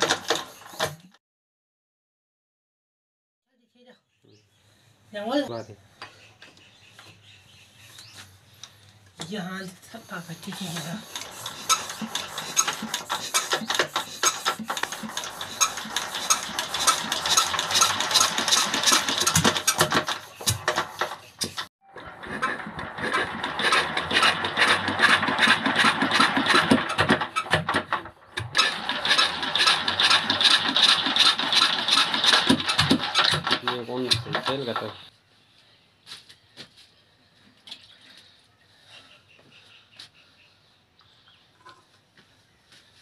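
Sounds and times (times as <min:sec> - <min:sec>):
diesel engine cranking clatter: 0:00.0 - 0:01.1, 0:10.0 - 0:35.1.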